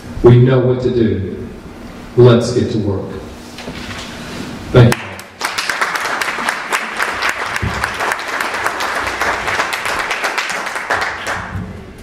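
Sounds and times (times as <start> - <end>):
audience applauding: 4.9 - 11.6.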